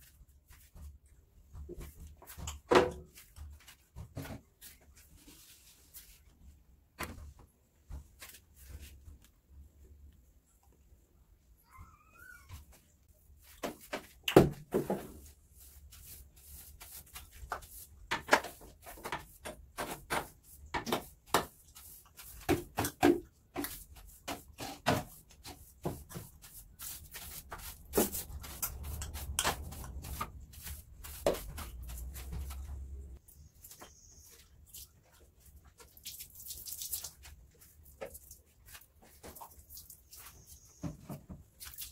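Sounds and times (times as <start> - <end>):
knocks and clatters of cleaning: 0.1 - 5.3, 13.4 - 34.0, 40.3 - 41.9.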